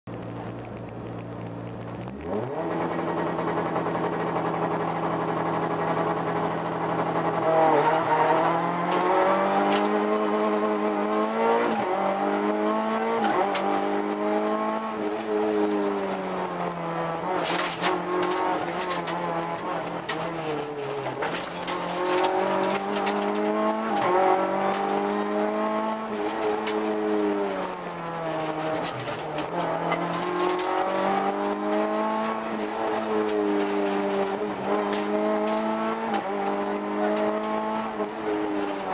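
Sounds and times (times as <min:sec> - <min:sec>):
rally car engine: 0:00.1 - 0:38.9
sharp clicks and knocks: 0:13.1 - 0:38.9.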